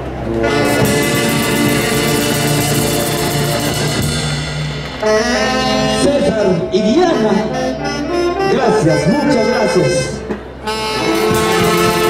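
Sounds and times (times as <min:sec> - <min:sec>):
brass band playing: 0:00.0 - 0:12.0
drums and cymbals: 0:00.4 - 0:06.0, 0:11.0 - 0:12.0.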